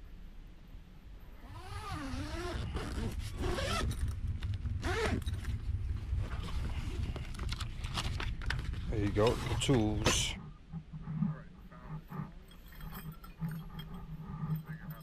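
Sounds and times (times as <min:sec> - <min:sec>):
zipper being pulled open: 0:01.4 - 0:04.2, 0:04.8 - 0:05.6
low rumble: 0:02.5 - 0:15.0.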